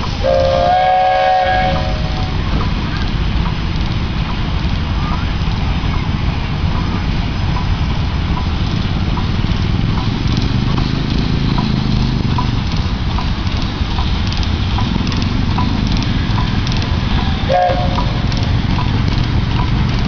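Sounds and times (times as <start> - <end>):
hiss of escaping steam: 0.0 - 4.5
steam engine idling: 0.0 - 20.0.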